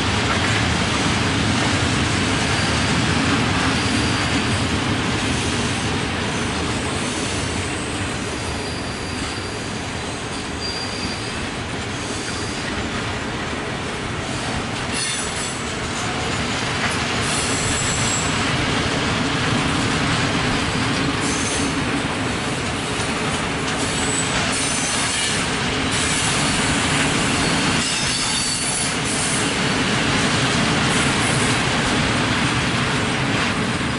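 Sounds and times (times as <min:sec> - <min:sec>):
train wheels rumbling on rails: 0:00.0 - 0:33.9
wheel squeals: 0:07.8 - 0:09.7, 0:10.3 - 0:11.4, 0:12.1 - 0:12.7, 0:27.4 - 0:29.4.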